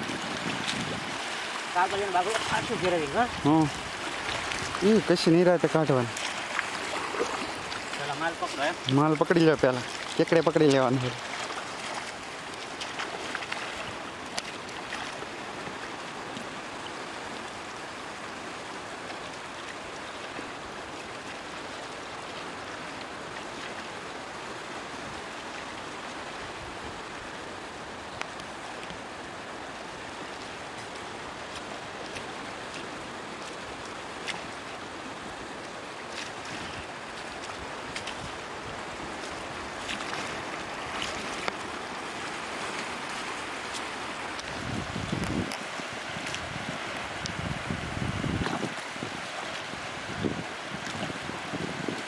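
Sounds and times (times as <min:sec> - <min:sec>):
shallow seawater sloshing: 0:00.0 - 0:17.4, 0:30.3 - 0:52.0
water splashing: 0:00.0 - 0:52.0.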